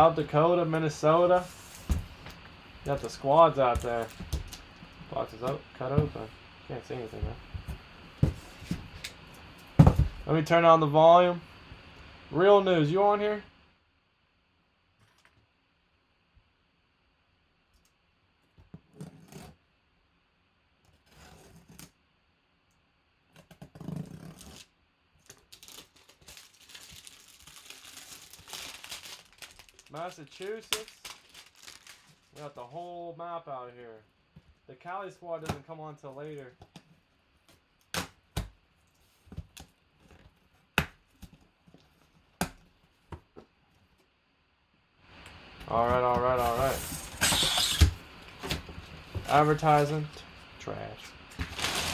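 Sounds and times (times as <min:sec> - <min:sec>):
plastic wrap crinkling: 0:02.9 - 0:04.7, 0:25.2 - 0:32.6, 0:51.4 - 0:51.9
knife cutting plastic wrap: 0:51.4 - 0:51.9.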